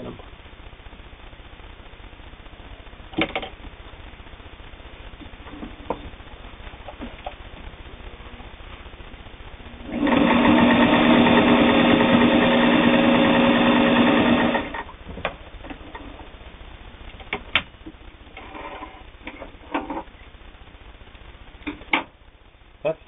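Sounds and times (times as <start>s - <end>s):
sewing machine stitching: 9.8s - 14.9s.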